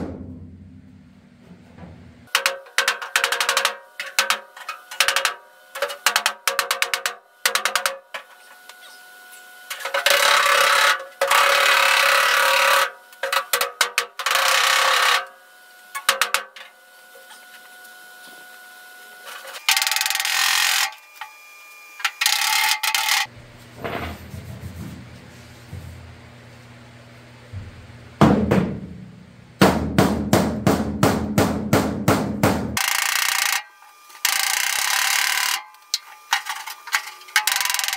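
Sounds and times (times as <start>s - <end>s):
low hum: 0.0s - 2.3s.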